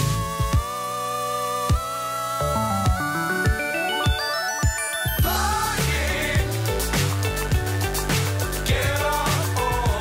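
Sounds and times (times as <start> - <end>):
synth notes stepping upward: 0.5 - 7.2.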